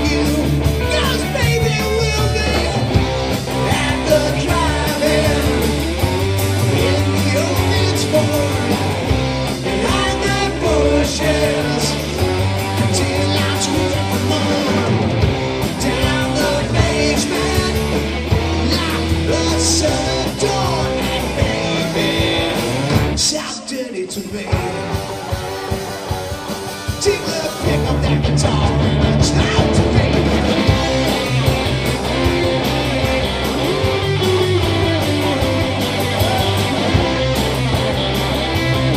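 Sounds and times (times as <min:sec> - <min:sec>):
drums: 0:00.0 - 0:38.9
electric guitar: 0:00.0 - 0:38.9
person singing: 0:03.5 - 0:05.8, 0:06.7 - 0:08.8, 0:09.7 - 0:12.2, 0:12.8 - 0:14.9, 0:15.7 - 0:22.7, 0:27.0 - 0:30.3.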